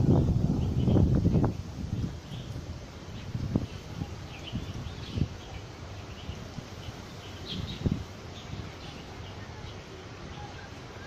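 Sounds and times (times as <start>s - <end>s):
low rumble: 0.0s - 2.1s
small birds chirping: 0.0s - 11.0s.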